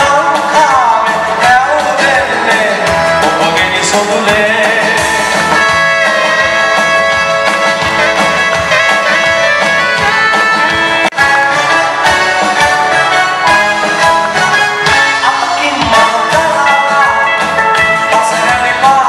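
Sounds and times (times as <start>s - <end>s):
person singing: 0.0s - 6.9s, 11.4s - 19.0s
live band playing: 0.0s - 19.0s.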